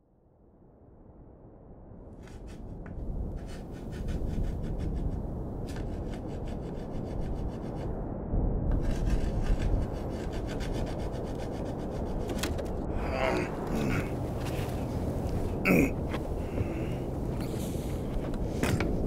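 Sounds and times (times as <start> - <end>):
low rumble: 0.5 - 19.0
crayon scribbling on rough surface: 3.4 - 7.9, 8.8 - 12.4.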